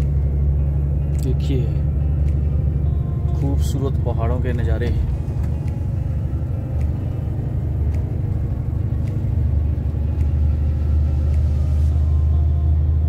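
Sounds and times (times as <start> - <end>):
heavy truck driving: 0.0 - 13.0
faint ticks: 4.8 - 12.0.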